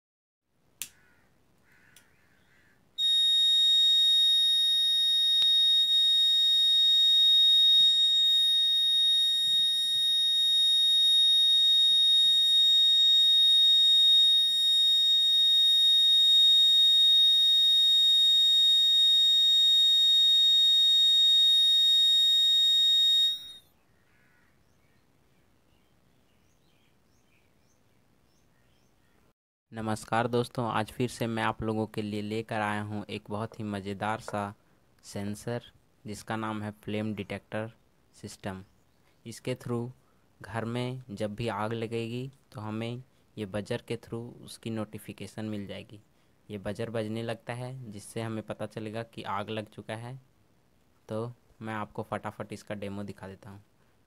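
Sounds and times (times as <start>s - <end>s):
click: 1.6s - 2.1s
shrill buzzer alarm tone: 3.0s - 23.8s.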